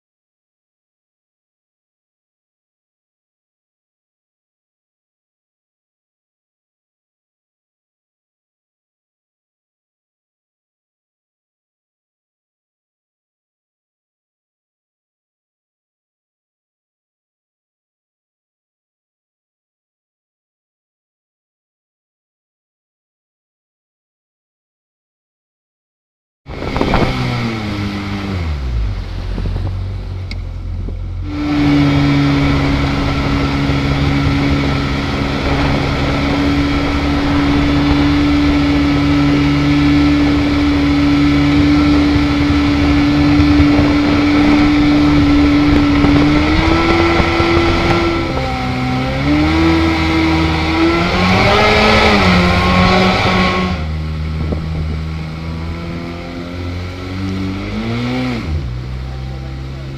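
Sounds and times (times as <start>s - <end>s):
wind: 26.4s - 59.9s
jet boat engine droning: 26.5s - 59.9s
water rushing: 26.5s - 59.9s.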